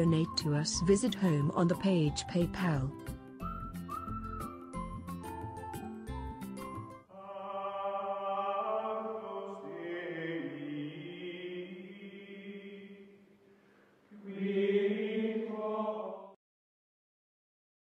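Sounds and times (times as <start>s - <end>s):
choral drone: 7.1s - 13.2s, 14.1s - 16.4s.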